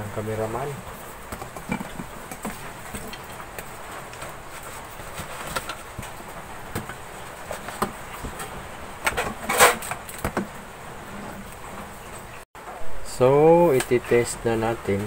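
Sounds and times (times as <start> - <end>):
steady hiss: 0.0 - 15.0
rustling scrape: 3.8 - 6.5, 7.4 - 10.2, 10.9 - 12.2.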